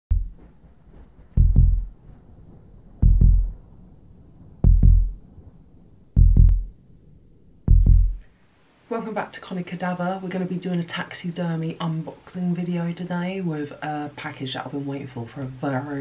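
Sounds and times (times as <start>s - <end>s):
heartbeat thumps: 0.1s - 3.7s, 4.6s - 5.2s, 6.2s - 6.8s, 7.7s - 8.3s
faint low drone: 0.1s - 8.3s.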